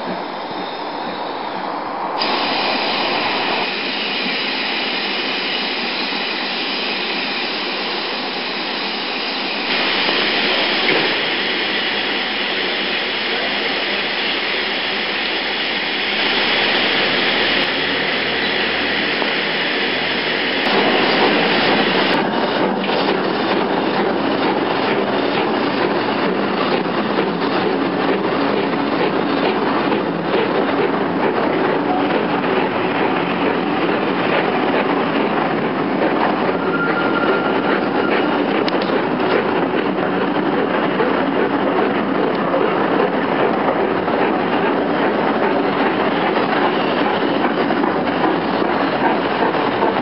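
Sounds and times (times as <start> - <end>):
steam hissing from locomotive: 0.0 - 30.0
steam engine pulses: 0.0 - 50.0.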